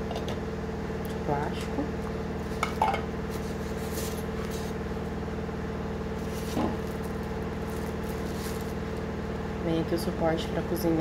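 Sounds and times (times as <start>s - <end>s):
steady low hum: 0.0s - 11.0s
packaging rustling: 6.2s - 9.2s.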